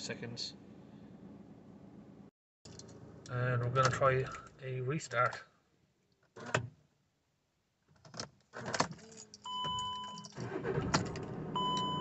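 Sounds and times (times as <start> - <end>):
keys jangling: 8.9 - 10.4
dashboard warning chimes: 9.4 - 10.8, 11.6 - 12.0
diesel engine cranking and idling: 10.4 - 12.0.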